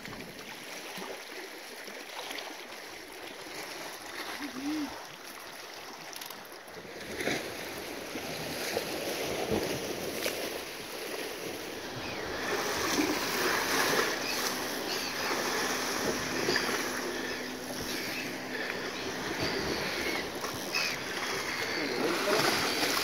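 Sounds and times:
sea surf washing against rocks: 6.8 - 23.0.

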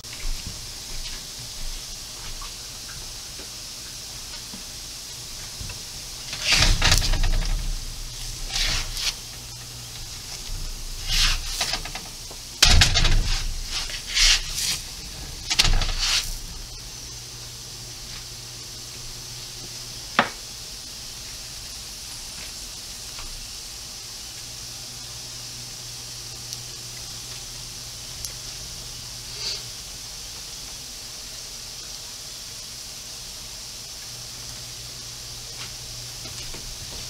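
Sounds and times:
pancakes sizzling on a griddle: 0.0 - 37.0
pancakes being turned over: 4.3 - 17.0.

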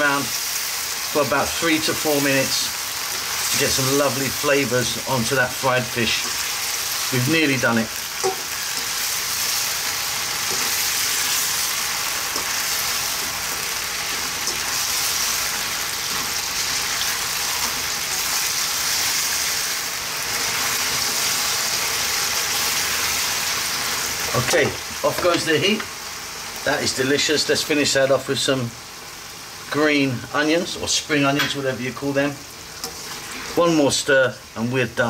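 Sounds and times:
food sizzling in a wok: 0.0 - 35.0
spoon stirring and tossing food: 8.1 - 18.7.

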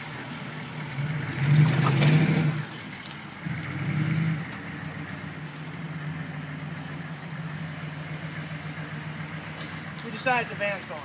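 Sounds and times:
diesel truck engine under load: 0.0 - 11.0.

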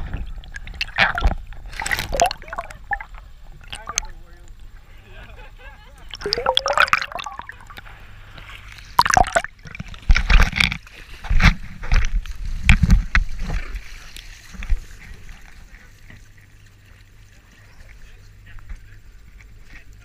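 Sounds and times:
water splashing: 0.0 - 4.3, 6.0 - 11.3
water lapping: 0.0 - 20.0.

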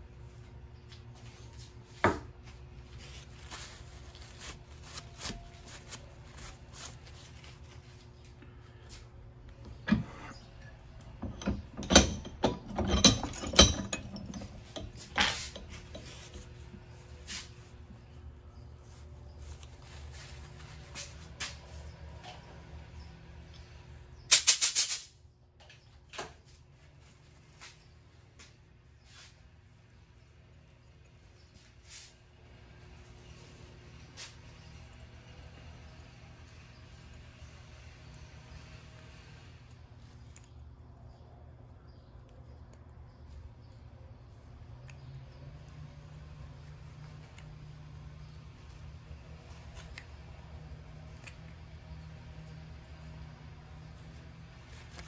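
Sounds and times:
handling clicks and knocks: 9.5 - 16.8
air gun hissing blasts: 24.3 - 25.1.

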